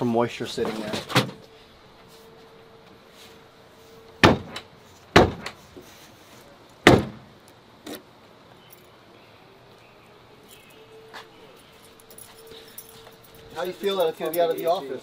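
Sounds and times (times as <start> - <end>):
car door slamming: 4.2 - 5.6, 6.8 - 7.3.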